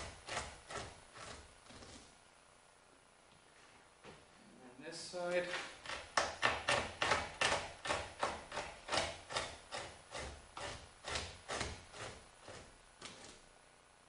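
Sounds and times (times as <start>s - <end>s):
knife scraping hide: 0.0s - 2.2s, 5.5s - 13.5s.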